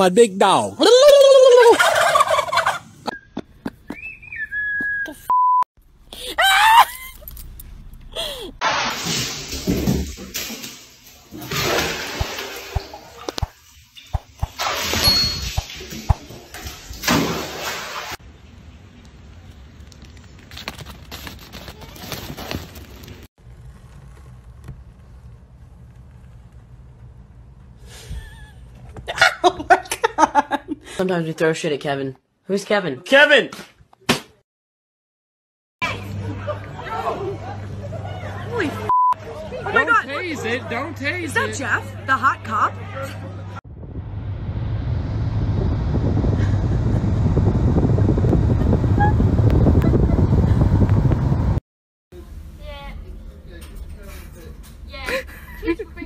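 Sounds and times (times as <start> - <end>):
person laughing in bursts: 0.8 - 2.8, 6.2 - 7.3, 28.0 - 30.8, 55.1 - 56.0
turkeys gobbling: 1.6 - 2.9.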